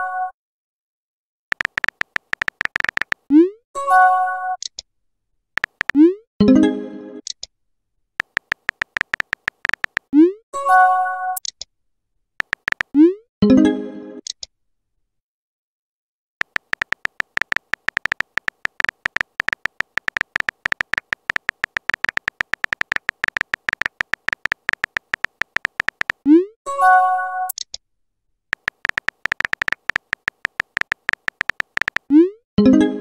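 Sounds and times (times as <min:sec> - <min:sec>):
keyboard typing beeps: 0:01.5 - 0:03.5, 0:05.6 - 0:06.2, 0:08.2 - 0:10.4, 0:12.4 - 0:13.2, 0:16.4 - 0:26.5, 0:28.5 - 0:32.4.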